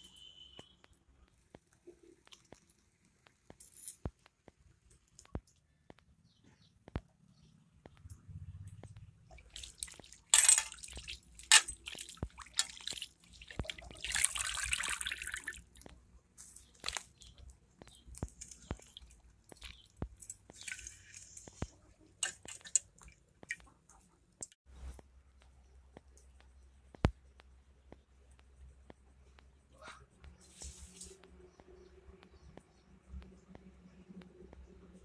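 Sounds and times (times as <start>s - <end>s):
water splashing in metal pan: 9.3s - 15.8s, 18.4s - 23.7s.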